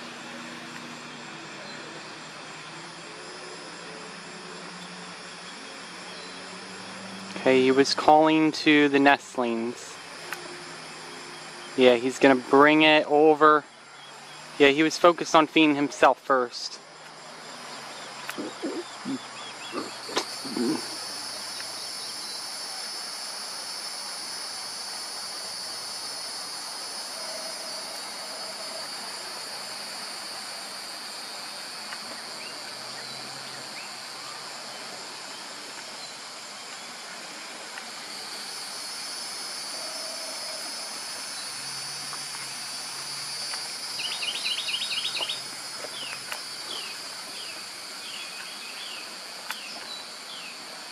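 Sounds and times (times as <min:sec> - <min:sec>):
high-pitched insect chorus: 0:00.0 - 0:50.9
bird chirping: 0:17.9 - 0:22.4, 0:44.0 - 0:50.5.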